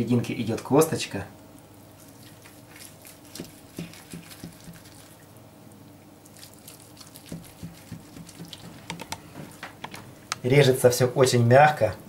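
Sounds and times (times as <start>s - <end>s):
knife slicing meat on board: 3.2s - 5.0s, 7.0s - 9.2s.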